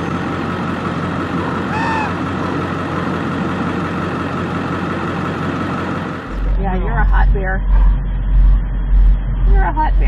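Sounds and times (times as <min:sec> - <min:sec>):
truck engine idling: 0:00.0 - 0:10.0
short squeak-like call: 0:01.7 - 0:02.2.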